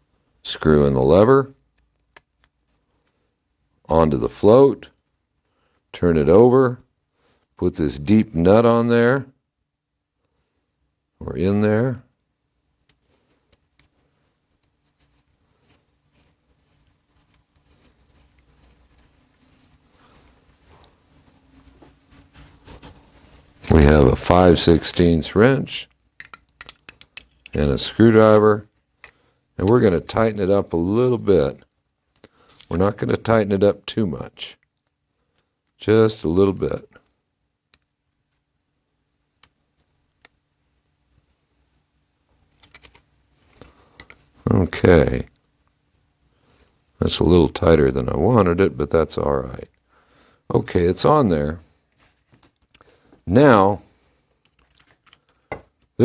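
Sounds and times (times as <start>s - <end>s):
small metal parts clicking: 26.0s - 27.6s, 54.4s - 55.9s.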